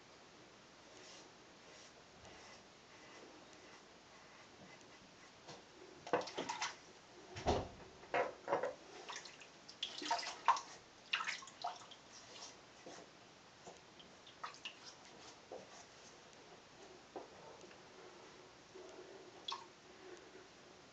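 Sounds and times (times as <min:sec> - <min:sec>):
water splashing in sink: 0:06.1 - 0:06.8, 0:09.0 - 0:12.5.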